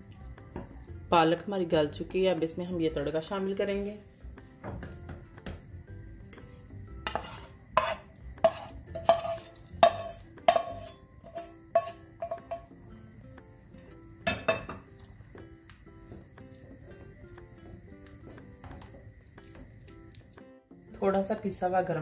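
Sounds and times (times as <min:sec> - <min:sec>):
pan knocking on pressure cooker rim: 0:07.1 - 0:12.7, 0:14.2 - 0:14.9.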